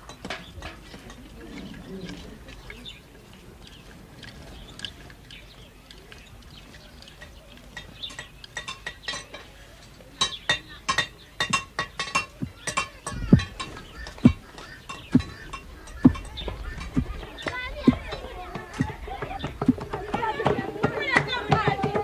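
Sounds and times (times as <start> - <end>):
sharp ringing percussion strikes: 11.4 - 18.0
deep low drum strokes: 12.4 - 22.0.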